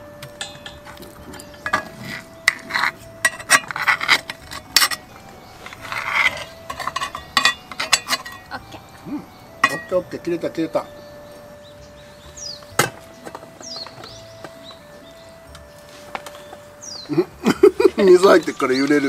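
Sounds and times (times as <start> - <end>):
cutlery and dishes clinking: 0.3 - 8.5, 9.6 - 10.0.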